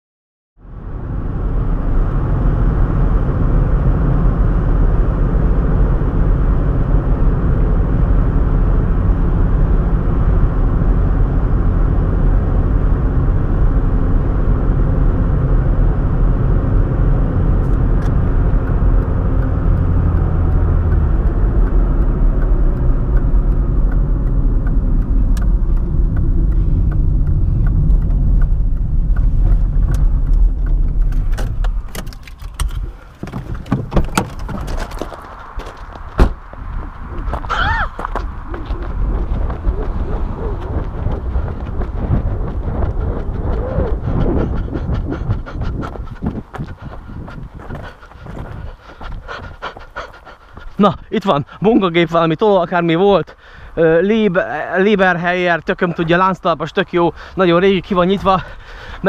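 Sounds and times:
car engine and road noise: 0.6 - 59.0
tyres crackling on gravel: 29.6 - 44.5.

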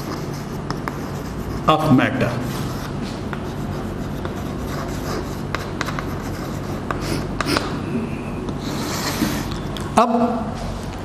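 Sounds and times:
chalk tapping on chalkboard: 0.0 - 1.9, 3.0 - 7.7
chalk scratching on chalkboard: 0.0 - 7.7, 8.6 - 9.6
steady low hum: 0.0 - 11.0.

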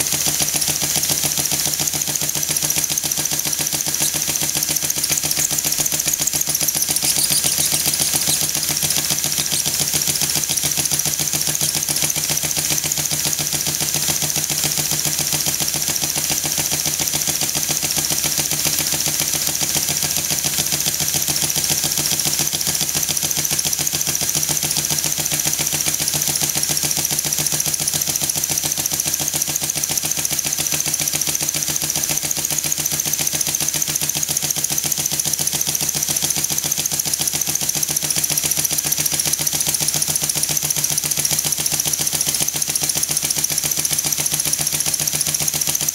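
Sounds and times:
steam engine chuffing on air: 0.0 - 18.4.

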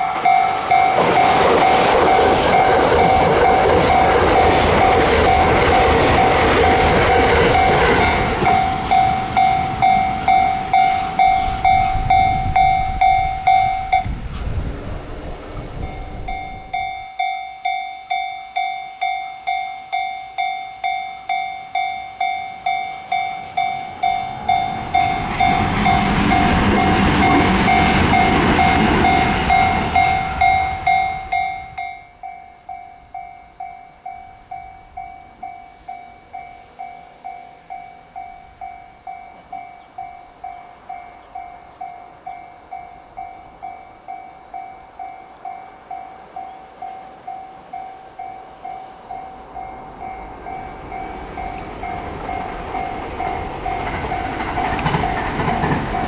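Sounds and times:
level crossing alarm dinging: 0.0 - 14.2, 15.8 - 36.8
electric train running past: 0.0 - 56.0.

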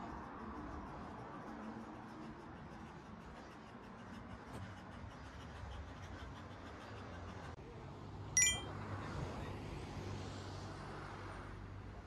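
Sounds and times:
brief high-pitched ring: 8.4 - 8.7.

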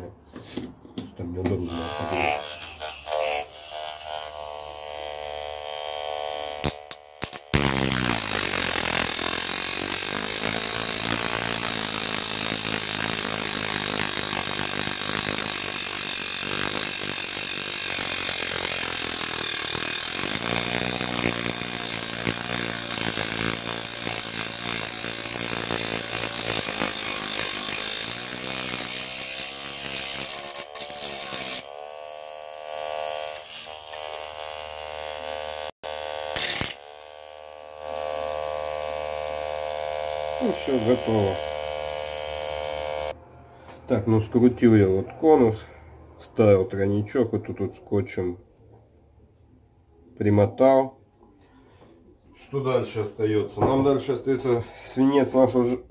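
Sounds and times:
rotary tool grinding steel: 1.7 - 43.2
motor whining: 31.2 - 43.2.

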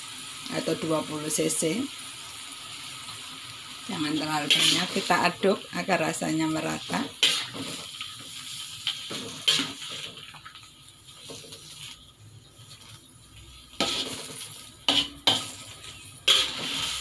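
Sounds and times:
light sizzle: 0.0 - 17.0
metal spatula scraping a wok: 4.0 - 5.4, 6.6 - 10.4, 11.0 - 17.0.

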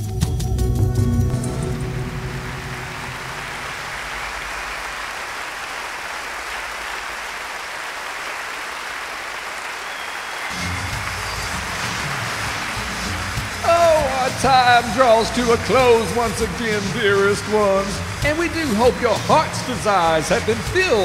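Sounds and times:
low music: 0.0 - 4.6, 10.5 - 21.0
audience applause: 1.6 - 21.0.

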